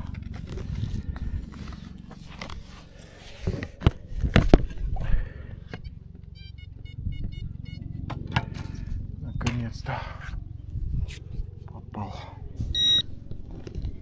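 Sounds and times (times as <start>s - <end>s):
low rumble: 0.0s - 14.0s
metal detector beeping: 5.7s - 7.9s, 12.7s - 13.1s.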